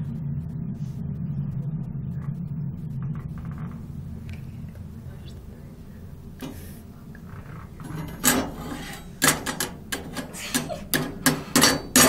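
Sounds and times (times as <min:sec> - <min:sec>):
steady low rumble: 0:00.0 - 0:12.0
hard objects knocking and clattering: 0:07.6 - 0:12.0.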